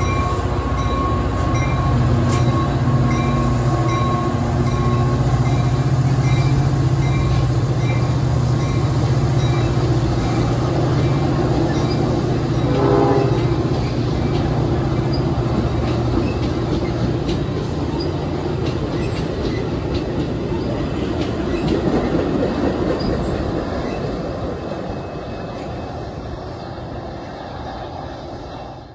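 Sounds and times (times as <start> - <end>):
train wheels rumbling and clacking: 0.0 - 28.9
train horn blast: 12.6 - 13.7.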